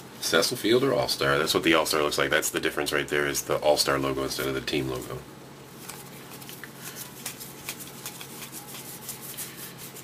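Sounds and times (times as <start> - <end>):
cards flicking against each other: 5.8 - 9.2.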